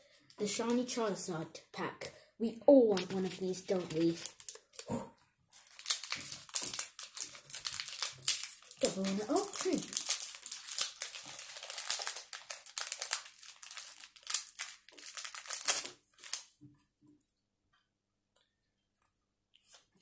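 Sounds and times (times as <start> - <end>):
foil wrapper crinkling and tearing: 2.9 - 4.9, 5.5 - 16.6.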